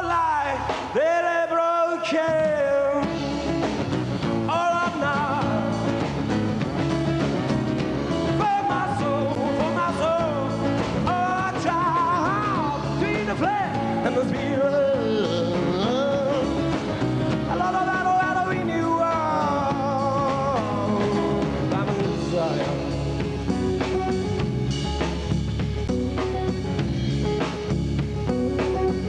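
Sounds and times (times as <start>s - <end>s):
man singing: 0.0s - 6.3s, 8.1s - 23.2s
acoustic guitar: 0.0s - 29.0s
electric bass: 2.9s - 29.0s.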